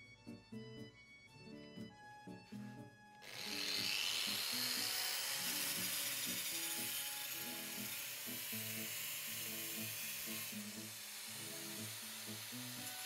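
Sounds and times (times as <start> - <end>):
background music: 0.0 - 13.0
angle grinder grinding metal: 3.2 - 13.0.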